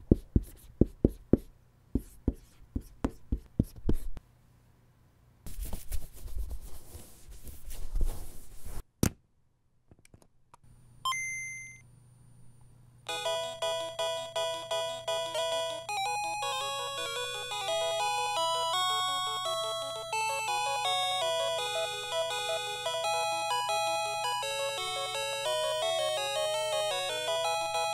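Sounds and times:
chiptune video game music: 0:13.1 - 0:27.9.

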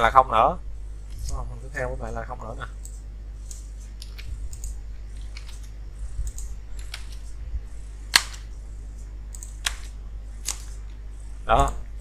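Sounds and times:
low electrical hum: 0:00.0 - 0:12.0
keyboard keys clicking: 0:08.1 - 0:08.5.

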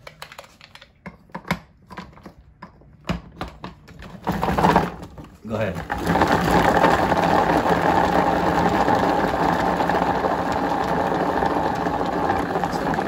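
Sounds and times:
food chopper motor whirring: 0:04.0 - 0:05.1, 0:05.8 - 0:13.0.

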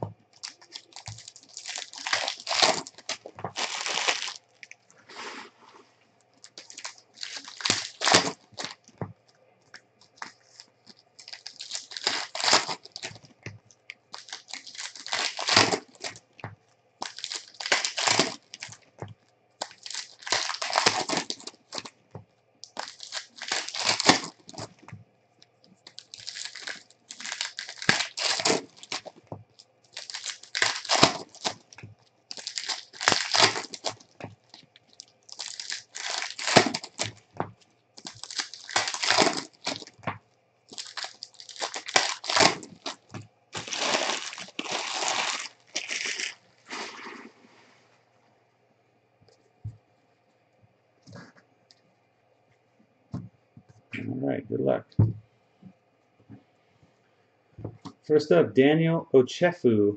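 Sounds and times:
plastic wrappers crinkling: 0:00.0 - 0:05.6, 0:06.2 - 0:47.5
pack being torn open: 0:00.4 - 0:04.4, 0:06.4 - 0:08.8, 0:10.0 - 0:13.3, 0:14.1 - 0:16.2, 0:17.0 - 0:18.8, 0:19.6 - 0:21.9, 0:22.6 - 0:24.8, 0:25.8 - 0:29.2, 0:29.9 - 0:37.2, 0:38.0 - 0:40.0, 0:40.7 - 0:47.2.

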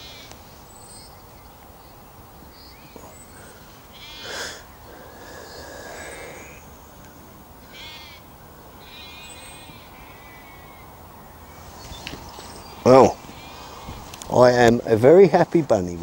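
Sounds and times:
faint bird chirps: 0:00.0 - 0:14.1
bleating animal calls: 0:03.0 - 0:06.6, 0:07.7 - 0:10.9, 0:12.7 - 0:14.2.

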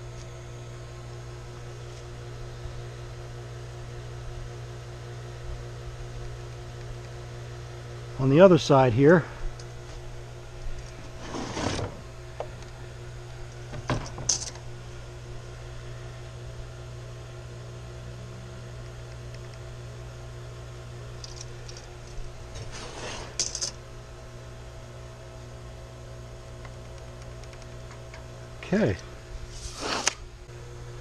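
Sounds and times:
steady low hum: 0:00.0 - 0:31.0
tool scraping on wood: 0:11.1 - 0:12.0, 0:22.6 - 0:23.5, 0:29.5 - 0:30.2.

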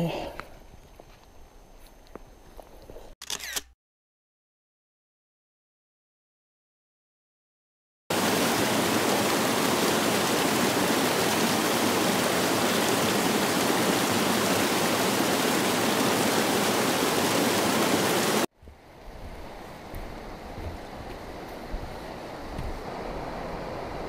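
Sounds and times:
creek water rushing: 0:08.1 - 0:18.5.

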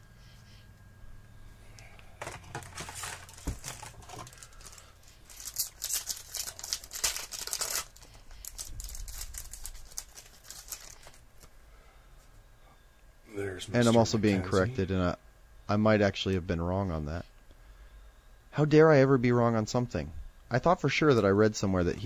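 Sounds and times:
cards rustling: 0:02.1 - 0:11.5
wrapper crinkling and tearing: 0:02.2 - 0:11.5.

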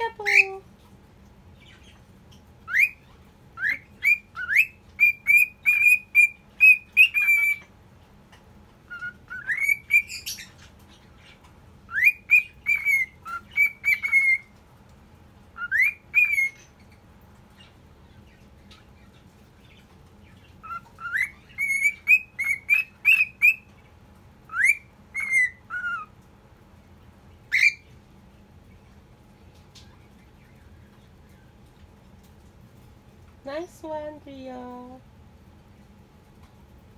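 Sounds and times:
cockatiel whistling: 0:02.7 - 0:03.0, 0:03.6 - 0:07.6, 0:08.9 - 0:10.5, 0:11.9 - 0:14.5, 0:15.6 - 0:16.6, 0:20.6 - 0:23.7, 0:24.5 - 0:26.1.

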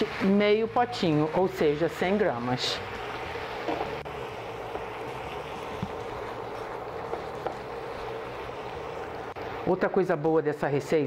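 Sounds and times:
food simmering with steady hiss: 0:00.0 - 0:11.0
spatula scraping wok: 0:01.2 - 0:09.6.

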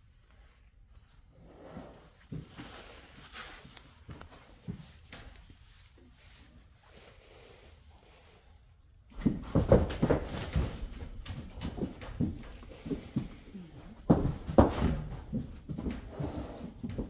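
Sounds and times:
horse hooves thudding and knocking: 0:09.1 - 0:17.0.

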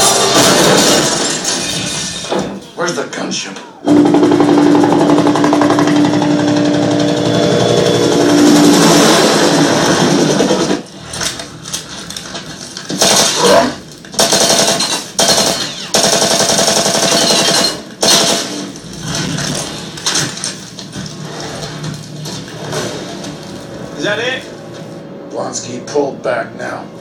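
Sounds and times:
heavy automatic gunfire: 0:03.9 - 0:10.9, 0:12.9 - 0:20.5.

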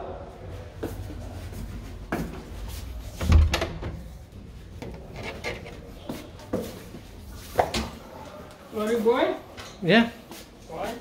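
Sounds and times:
door closing thump: 0:03.2 - 0:04.0.

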